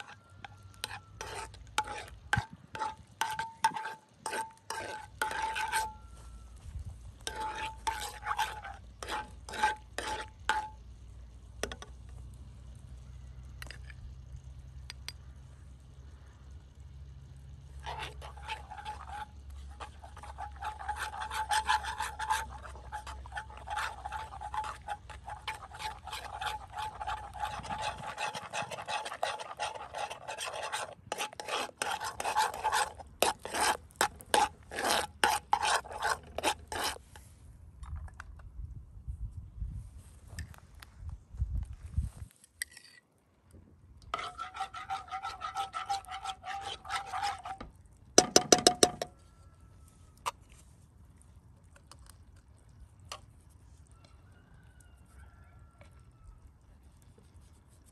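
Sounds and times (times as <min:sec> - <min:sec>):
metal spoon scraping pan: 0:00.0 - 0:06.3, 0:07.2 - 0:11.0, 0:17.7 - 0:37.2, 0:44.0 - 0:49.1.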